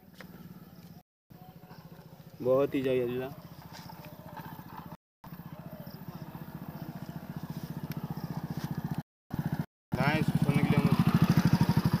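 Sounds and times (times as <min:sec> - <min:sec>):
engine running with rapid beat: 0:03.2 - 0:12.0.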